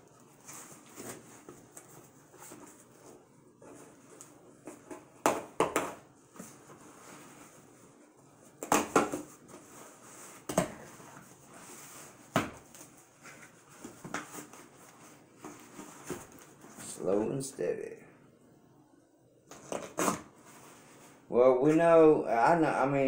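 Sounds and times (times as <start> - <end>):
cardboard crackling and rustling: 0.1 - 5.0.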